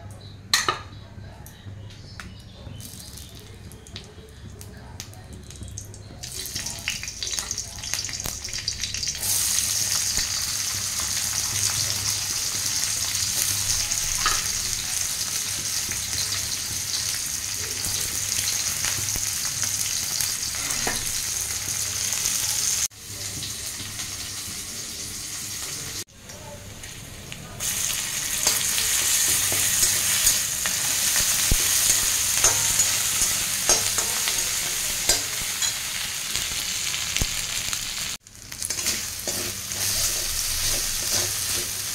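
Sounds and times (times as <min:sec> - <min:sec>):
hot oil sizzling: 0:02.8 - 0:41.9
metal spatula scraping pan: 0:38.7 - 0:41.9.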